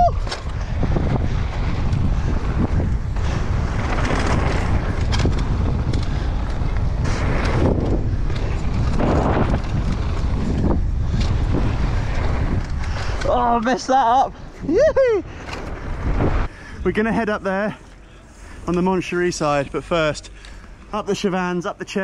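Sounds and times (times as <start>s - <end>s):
wind buffeting microphone: 0.0s - 17.7s
bike clicks and rattles: 0.0s - 20.9s.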